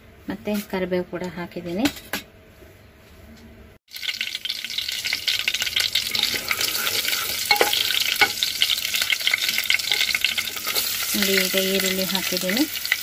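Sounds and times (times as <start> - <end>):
spices sizzling in hot oil: 3.9 - 13.0.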